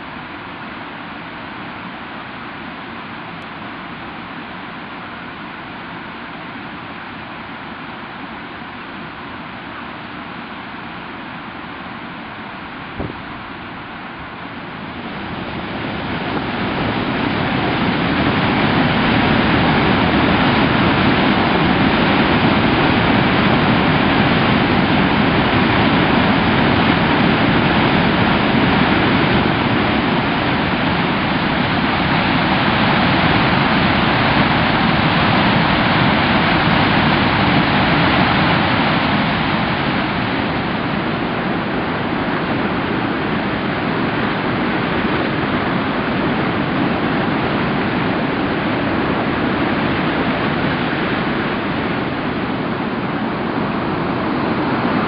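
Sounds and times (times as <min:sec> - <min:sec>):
waterfall roaring over rock: 0:15.0 - 0:55.0.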